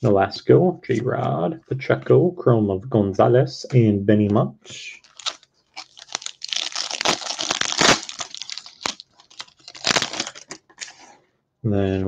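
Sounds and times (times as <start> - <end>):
foil wrapper tearing and crinkling: 5.0 - 11.0.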